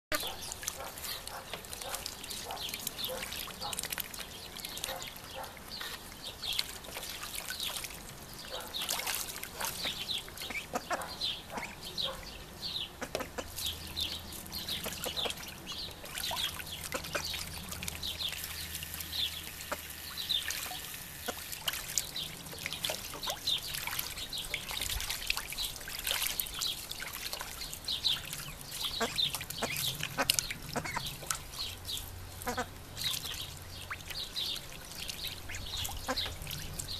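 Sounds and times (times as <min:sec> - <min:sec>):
ducks splashing in water: 0:00.1 - 0:36.9
duck calls: 0:32.4 - 0:32.7.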